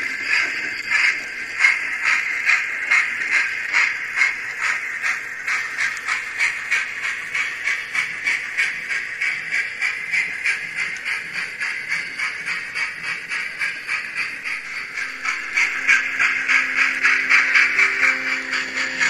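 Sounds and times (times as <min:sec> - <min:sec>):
steam locomotive chuffs with hiss: 0:00.0 - 0:19.0
background music: 0:15.1 - 0:19.0.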